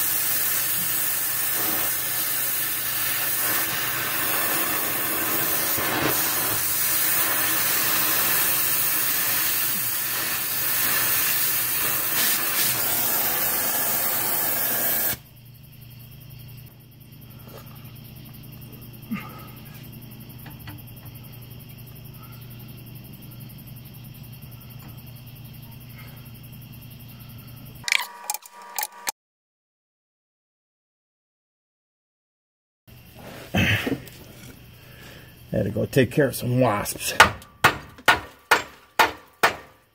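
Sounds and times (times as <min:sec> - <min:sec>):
cutting torch flame hissing: 0:00.0 - 0:15.3.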